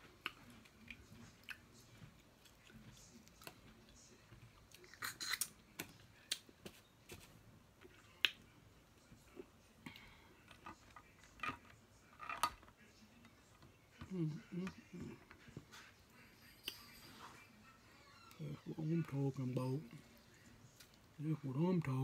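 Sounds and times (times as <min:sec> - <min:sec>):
chewing: 0:00.0 - 0:07.2.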